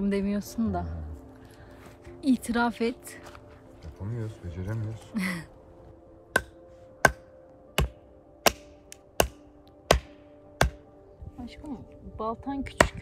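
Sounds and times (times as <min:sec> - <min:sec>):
axe chopping wood: 0:06.3 - 0:10.9, 0:12.7 - 0:13.0.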